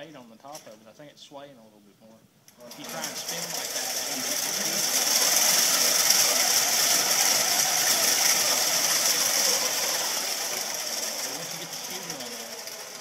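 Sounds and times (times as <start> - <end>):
robot motors and gearboxes whirring: 2.9 - 13.0.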